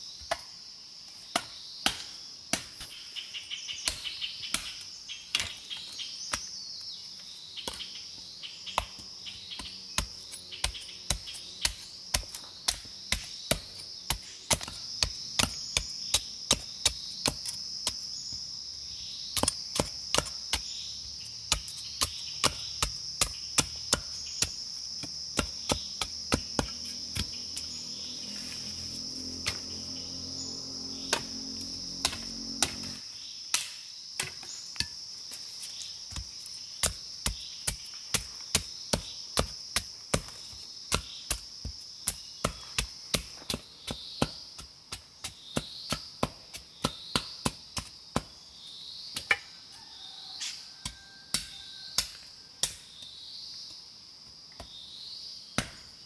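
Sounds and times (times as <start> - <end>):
insects chorus: 0.0 - 56.0
machete chopping wooden stick: 1.3 - 3.0, 3.8 - 6.6, 8.7 - 18.0, 19.3 - 20.8, 21.5 - 28.1, 29.4 - 29.8, 30.9 - 35.0, 35.7 - 48.4, 50.4 - 53.0, 55.6 - 56.0.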